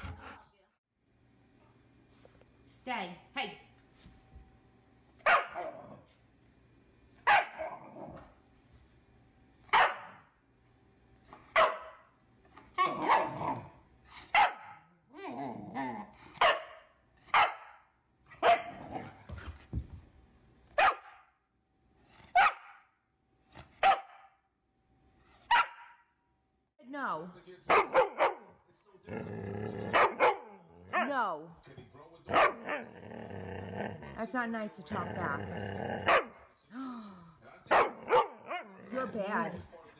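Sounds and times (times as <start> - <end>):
puppy barking: 5.2 - 5.8, 7.2 - 7.8, 9.7 - 10.3, 11.5 - 12.1, 14.3 - 14.8, 16.4 - 18.8, 20.8 - 21.3, 22.3 - 22.9, 23.8 - 24.4, 25.5 - 26.1, 27.7 - 28.6, 29.9 - 31.2, 32.3 - 32.8, 36.1 - 36.4, 37.7 - 38.8
puppy wavering grumble: 15.1 - 16.2, 29.1 - 30.0.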